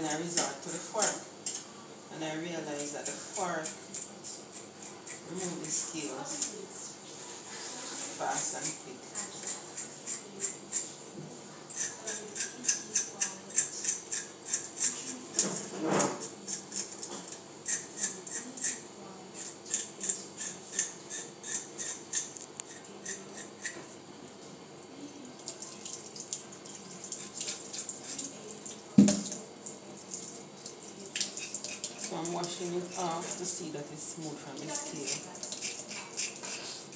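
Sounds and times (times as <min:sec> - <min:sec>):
fork scraping fish scales: 0:07.4 - 0:11.0, 0:11.7 - 0:18.8, 0:19.4 - 0:23.8, 0:27.0 - 0:28.4, 0:31.2 - 0:33.5, 0:34.6 - 0:36.9
tap running: 0:29.0 - 0:29.4.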